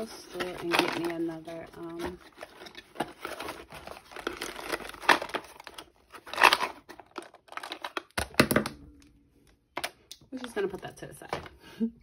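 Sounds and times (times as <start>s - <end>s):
packaging crinkling: 0.0s - 8.7s.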